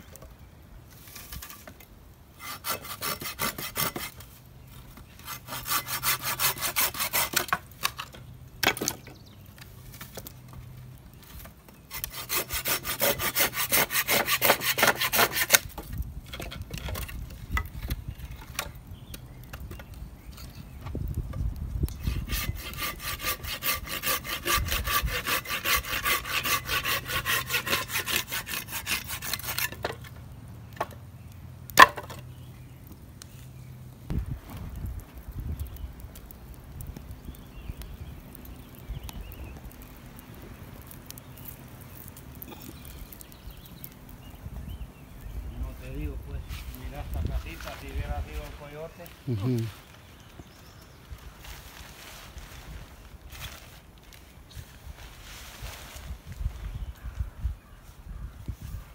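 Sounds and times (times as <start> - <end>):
hand saw rasping through wood: 2.4 - 4.2, 5.2 - 7.6, 11.9 - 15.6, 22.0 - 29.8.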